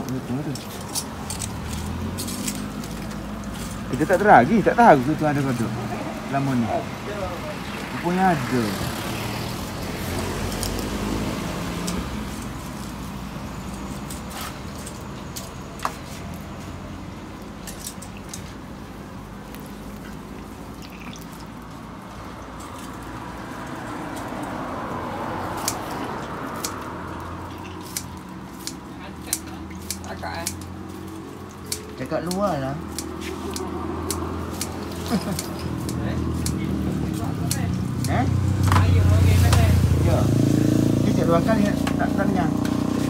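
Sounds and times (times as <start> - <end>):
kitchen scissors snipping: 27.6 - 30.8, 31.6 - 38.8.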